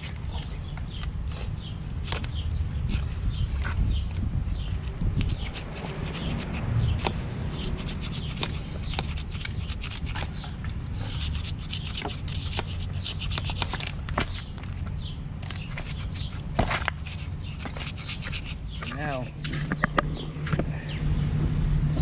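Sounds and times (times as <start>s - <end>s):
metal scraping wooden stick: 4.6s - 14.4s, 15.5s - 20.7s.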